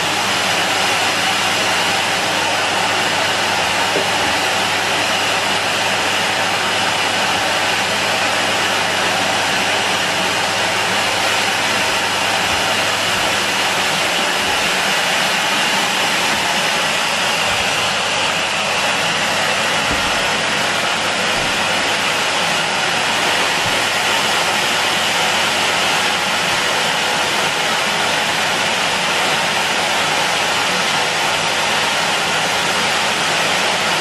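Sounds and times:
vacuum cleaner running: 0:00.0 - 0:34.0.

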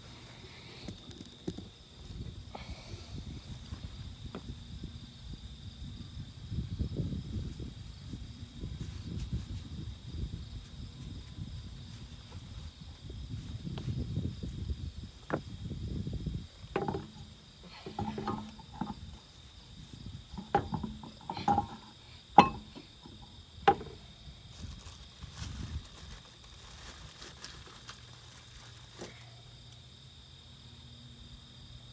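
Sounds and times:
wheel bumping and shuffling: 0:16.7 - 0:24.0.

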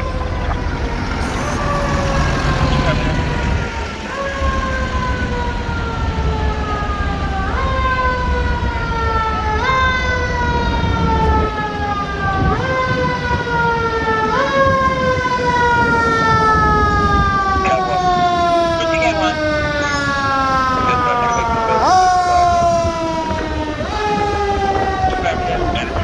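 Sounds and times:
fire engine siren: 0:00.0 - 0:26.0
low traffic rumble: 0:00.0 - 0:26.0.

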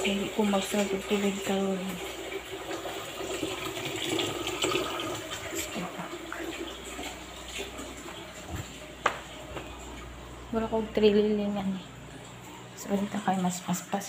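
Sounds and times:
water trickling into container: 0:00.0 - 0:10.6.

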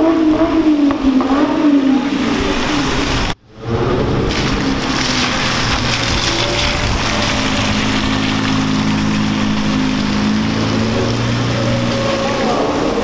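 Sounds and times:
car engine at low revs: 0:00.0 - 0:13.0
tyres hissing on wet pavement: 0:04.3 - 0:13.0.

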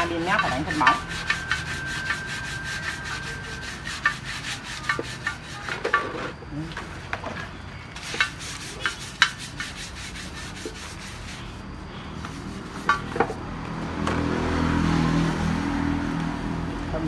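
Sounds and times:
hand brush scrubbing metal rim: 0:00.0 - 0:06.3, 0:08.0 - 0:13.4
engine humming: 0:00.0 - 0:09.7.

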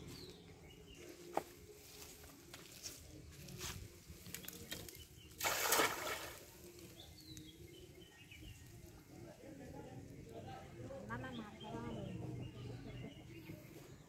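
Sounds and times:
net splashing into water: 0:05.3 - 0:06.6.

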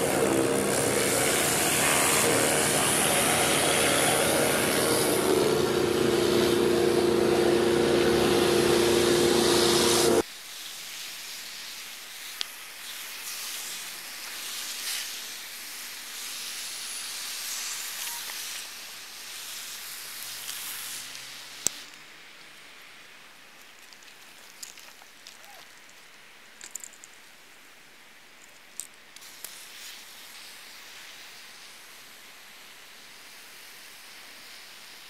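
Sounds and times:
pressure washer running: 0:00.0 - 0:10.2
water jet spraying on shingles: 0:00.0 - 0:21.9, 0:29.2 - 0:35.0.

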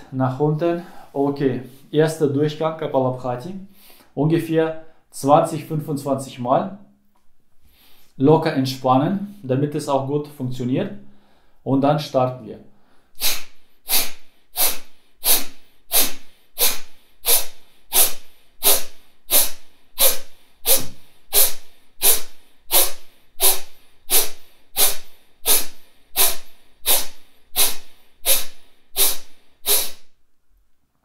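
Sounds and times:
man's forceful nasal exhalations: 0:03.7 - 0:04.2, 0:12.8 - 0:30.2.

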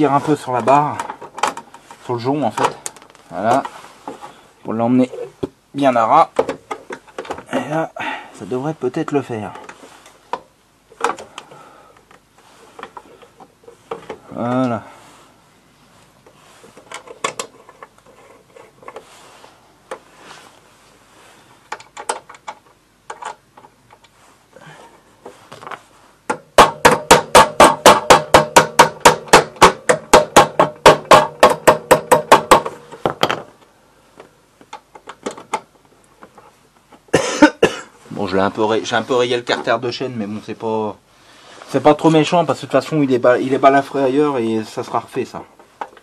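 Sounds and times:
handling clicks and knocks: 0:00.5 - 0:04.2, 0:06.3 - 0:07.5, 0:16.2 - 0:19.1, 0:21.6 - 0:24.2, 0:25.2 - 0:37.1
small hammer tapping: 0:26.3 - 0:33.0.

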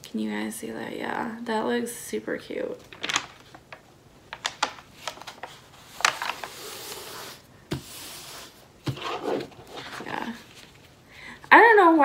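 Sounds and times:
canvas and paper rustling: 0:02.8 - 0:03.8, 0:04.4 - 0:11.0.

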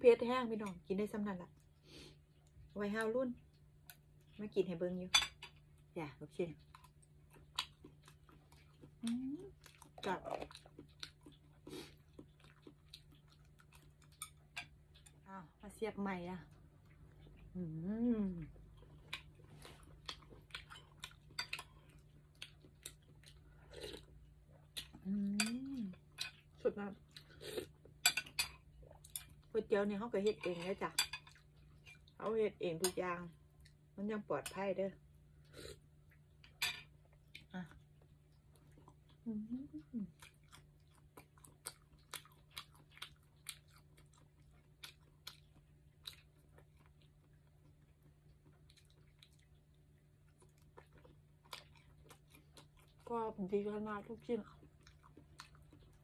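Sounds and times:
person chewing: 0:06.6 - 0:15.2, 0:18.6 - 0:29.5, 0:40.0 - 0:53.1, 0:54.5 - 0:56.0.

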